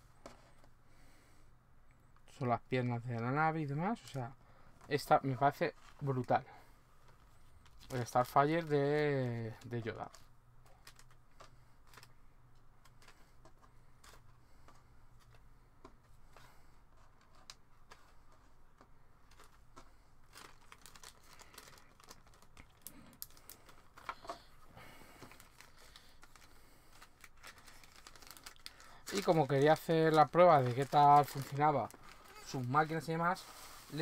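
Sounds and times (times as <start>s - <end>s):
plastic bags crinkling: 7.1s - 14.3s, 19.2s - 34.0s.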